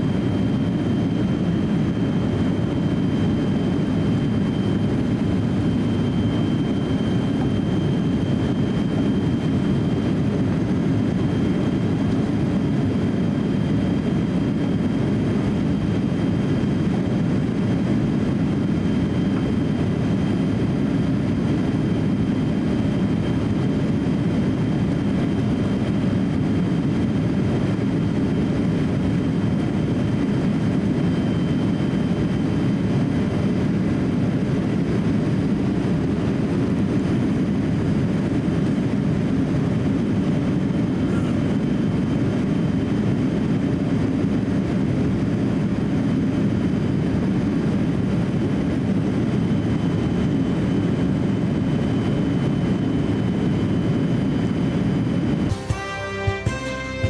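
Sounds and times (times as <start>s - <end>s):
faint high whine: 0.0s - 33.8s
jet engine and airflow rush: 0.0s - 57.0s.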